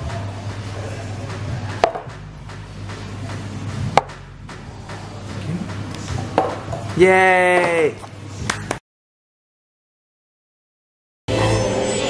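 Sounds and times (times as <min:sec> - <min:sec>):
background music: 0:00.0 - 0:08.8, 0:11.3 - 0:12.0.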